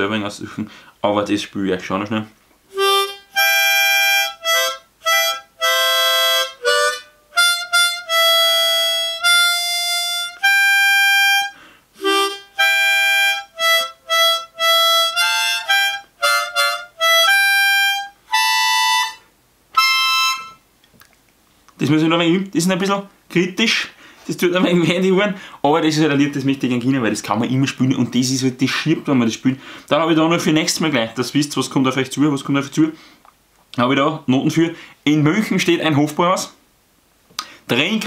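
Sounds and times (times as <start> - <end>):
harmonica melody: 2.7 - 20.6.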